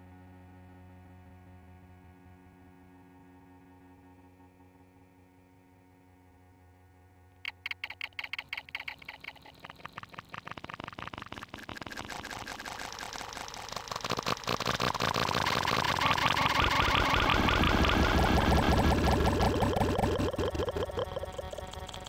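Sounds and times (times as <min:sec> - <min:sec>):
glitchy stuttering clicks: 0:07.4 - 0:22.0.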